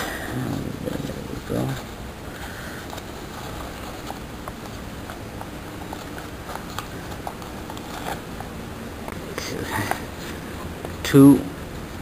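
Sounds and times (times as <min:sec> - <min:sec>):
paper crackling and clicking: 0:00.9 - 0:08.5.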